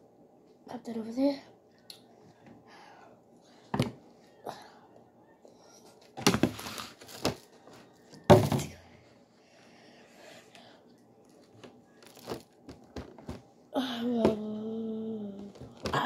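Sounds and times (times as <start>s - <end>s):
plastic packaging crinkling: 6.2s - 7.5s, 11.3s - 13.4s.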